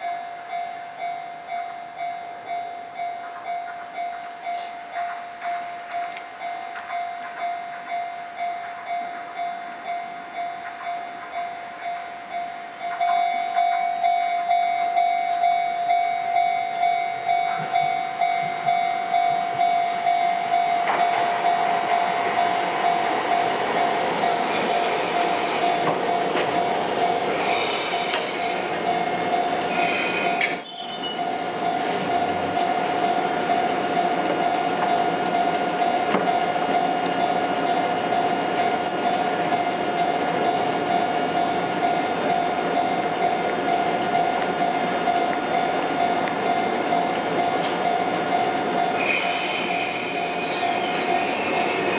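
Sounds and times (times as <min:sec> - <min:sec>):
tram braking: 0:00.0 - 0:51.9
steady tone: 0:14.0 - 0:49.4
wheel squeal: 0:24.0 - 0:32.7, 0:38.4 - 0:40.6, 0:47.6 - 0:51.9.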